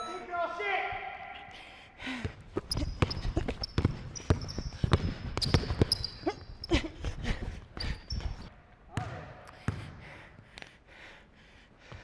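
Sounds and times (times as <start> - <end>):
basketball dribbled on wooden floor: 2.3 - 6.2
sneakers squeaking on floor: 2.5 - 9.8.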